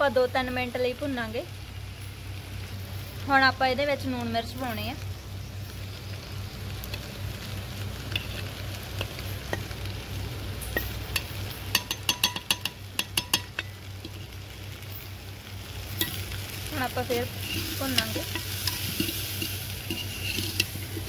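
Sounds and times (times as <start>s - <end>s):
faint sizzling: 0.0s - 21.0s
low steady hum: 0.0s - 21.0s
steel ladle scraping and clinking: 8.1s - 9.6s, 15.9s - 16.4s, 17.1s - 21.0s.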